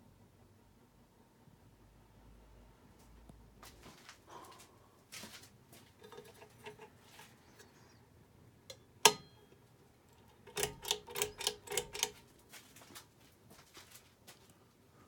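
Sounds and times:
ceiling fan running: 0:00.0 - 0:15.0
sharp clicks: 0:10.2 - 0:12.2.

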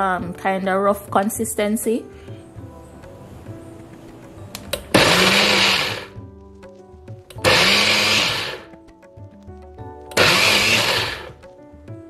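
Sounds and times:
blender motor pulsing: 0:05.0 - 0:06.1, 0:07.3 - 0:08.7, 0:10.1 - 0:11.4.

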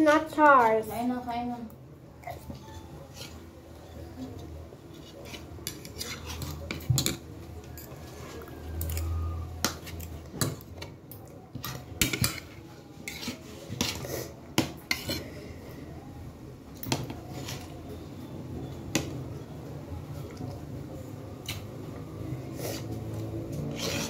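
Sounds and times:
cutlery clinking on a plate: 0:11.6 - 0:12.5.

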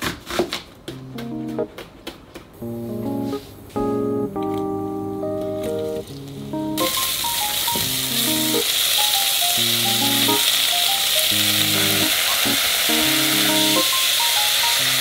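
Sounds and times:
onion and meat sizzling: 0:05.8 - 0:15.0.

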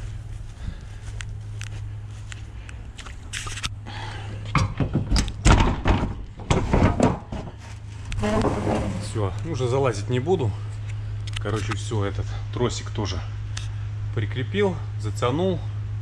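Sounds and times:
steady low hum: 0:00.0 - 0:16.0
heavy thumps: 0:04.5 - 0:07.6
metal knocking and clanking: 0:04.5 - 0:07.6.

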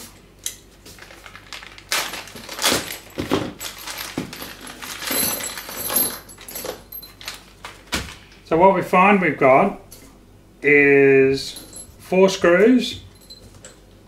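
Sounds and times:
plastic bag crinkling: 0:00.8 - 0:08.3
screws jingling and clinking: 0:02.2 - 0:07.4, 0:11.4 - 0:12.0, 0:13.1 - 0:13.8.

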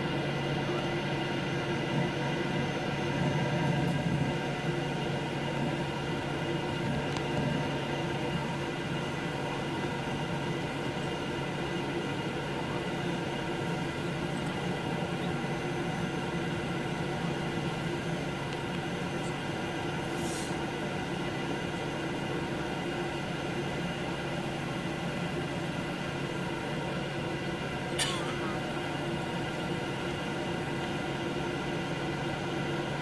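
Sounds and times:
aircraft cabin engine hum and whine: 0:00.0 - 0:33.0
brief hiss: 0:20.1 - 0:20.6.

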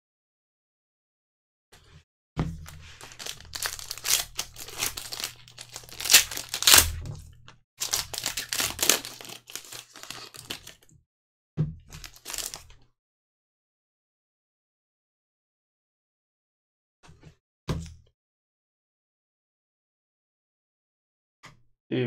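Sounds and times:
foil wrapper crinkling and tearing: 0:02.6 - 0:07.2, 0:07.8 - 0:10.9, 0:11.9 - 0:12.7.

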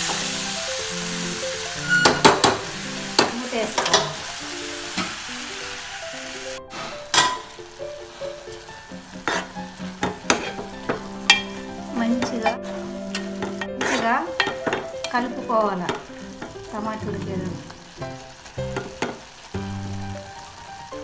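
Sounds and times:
curry sizzling in a pot: 0:00.0 - 0:21.0
spoon scraping a metal pot: 0:01.8 - 0:02.5, 0:09.2 - 0:09.5
tune of held notes: 0:16.7 - 0:18.2.

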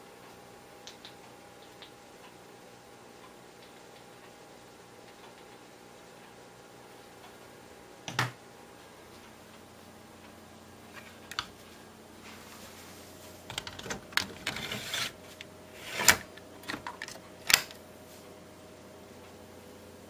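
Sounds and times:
sharp plastic clicks: 0:13.5 - 0:17.8
drive caddy scraping slide: 0:14.2 - 0:17.2.

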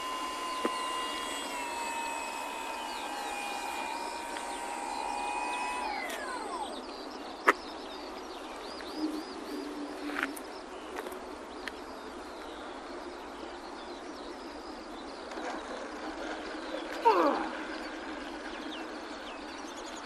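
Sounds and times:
electric motor whine spooling down: 0:00.0 - 0:07.1
birds chirping: 0:00.0 - 0:20.0
outdoor background hiss: 0:00.0 - 0:20.0.

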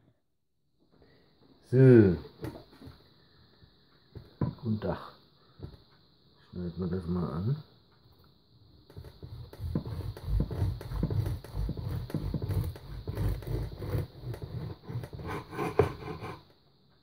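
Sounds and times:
bread knife sawing through crust: 0:08.9 - 0:16.5.

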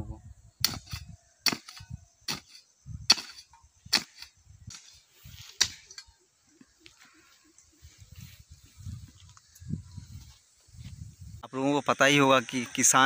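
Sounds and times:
hand hoe chopping soil: 0:00.7 - 0:04.9, 0:05.5 - 0:06.0.

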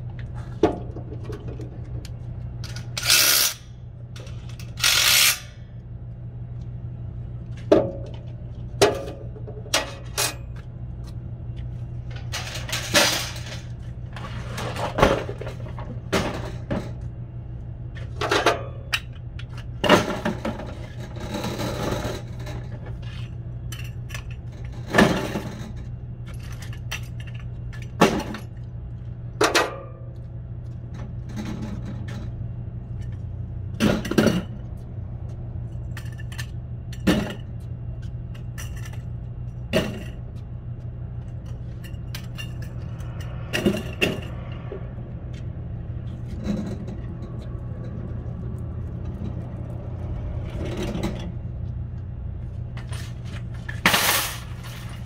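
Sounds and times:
steady low hum: 0:00.0 - 0:55.0
metal shopping carts clanking: 0:52.8 - 0:55.0.

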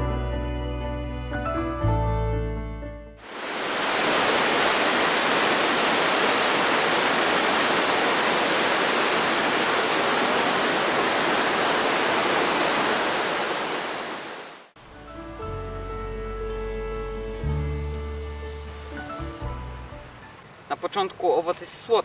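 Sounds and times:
waterfall rushing: 0:03.2 - 0:15.0, 0:16.5 - 0:22.0.

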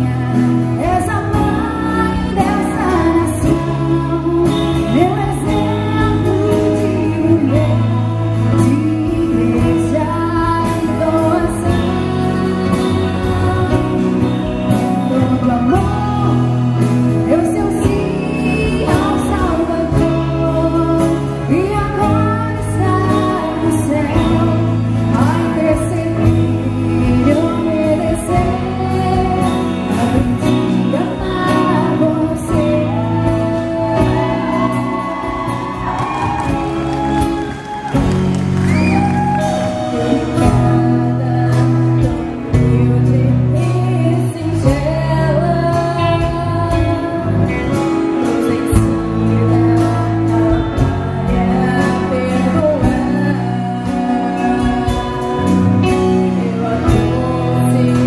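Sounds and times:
live band playing: 0:00.0 - 0:58.0
woman singing: 0:00.0 - 0:58.0.

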